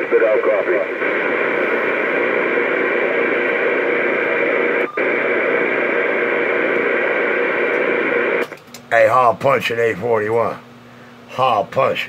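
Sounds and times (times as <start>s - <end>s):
radio static hiss: 0.0s - 9.3s.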